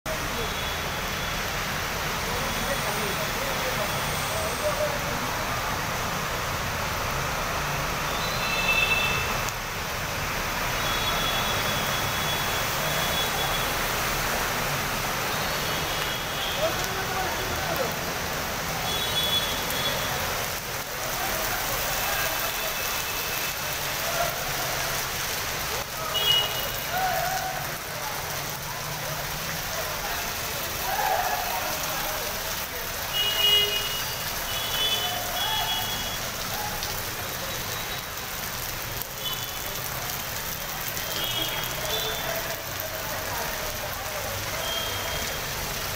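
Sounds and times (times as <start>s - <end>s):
heavy rain splashing on road: 0.1s - 45.9s.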